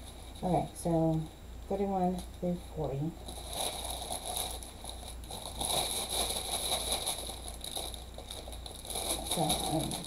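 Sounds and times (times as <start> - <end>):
plastic bags crinkling: 3.2 - 10.0.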